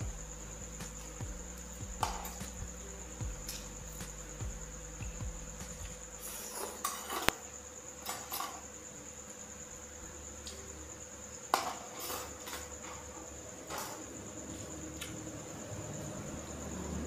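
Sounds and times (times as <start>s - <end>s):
high-pitched whine: 0.0s - 11.4s.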